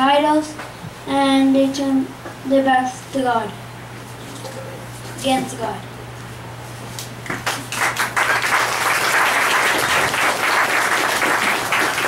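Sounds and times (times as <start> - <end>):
audience applause: 7.3 - 12.0.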